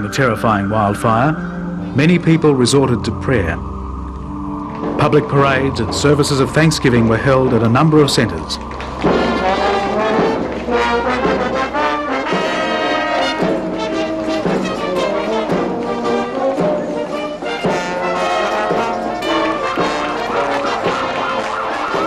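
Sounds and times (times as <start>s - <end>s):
marching brass band playing: 8.5s - 22.0s.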